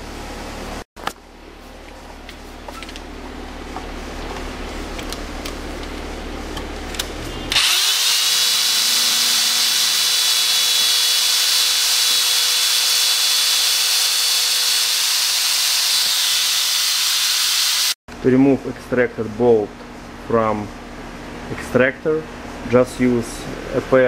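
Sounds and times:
electric drill whining: 0:07.5 - 0:18.0.

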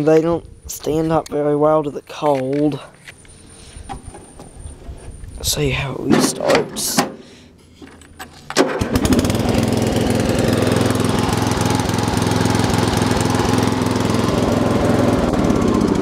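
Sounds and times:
person speaking: 0:00.0 - 0:03.0, 0:04.8 - 0:07.2
lawn tractor engine starting: 0:03.3 - 0:16.0.

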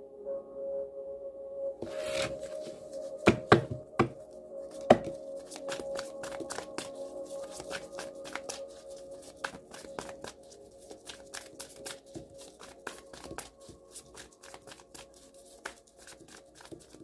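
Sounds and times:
faint background music: 0:00.0 - 0:17.0
cards being shuffled: 0:01.8 - 0:17.0.

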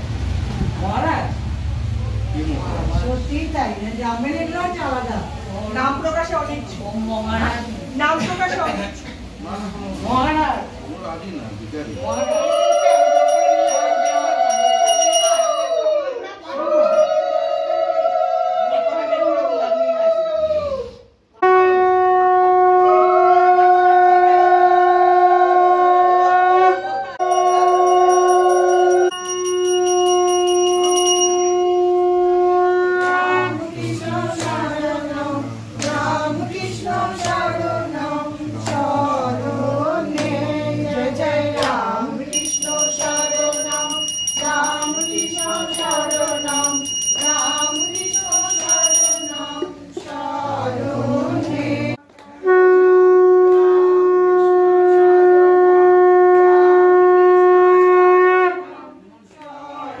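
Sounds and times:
wavering voices: 0:11.9 - 0:21.1, 0:26.7 - 0:32.5, 0:33.1 - 0:52.0
high steady ringing tone: 0:12.0 - 0:16.1, 0:27.2 - 0:32.2, 0:42.3 - 0:49.8
conch shell blasts: 0:21.4 - 0:23.1, 0:25.8 - 0:33.6, 0:42.3 - 0:49.8, 0:52.4 - 0:58.8.

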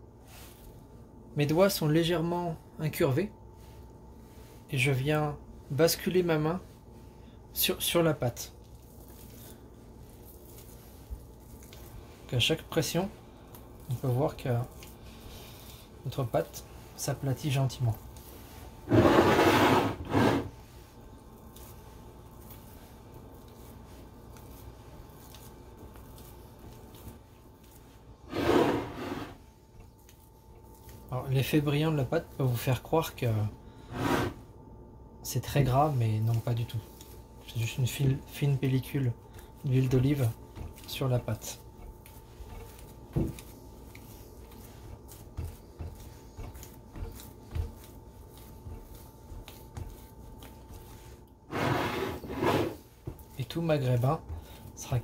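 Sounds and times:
hands squishing and rubbing dough: 0:00.0 - 0:19.4, 0:20.3 - 0:55.0
palms thumping dough: 0:35.4 - 0:51.3, 0:52.7 - 0:55.0.

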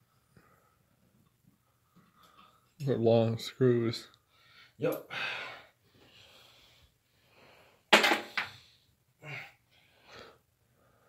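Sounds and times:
man's heavy wheezy breathing: 0:04.3 - 0:11.0.

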